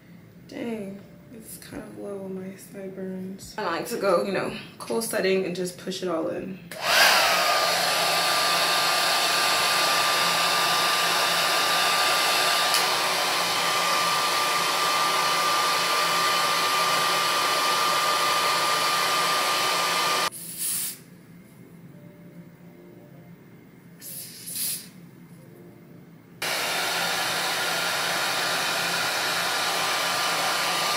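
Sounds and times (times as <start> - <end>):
hair dryer running: 6.7 - 20.3, 26.4 - 30.9
brief hiss: 20.3 - 21.1, 24.0 - 25.0.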